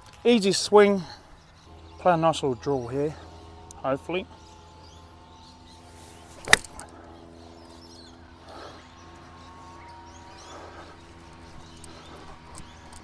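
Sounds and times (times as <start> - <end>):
golf club swish: 6.0 - 6.8
golf club striking ball: 6.4 - 6.9.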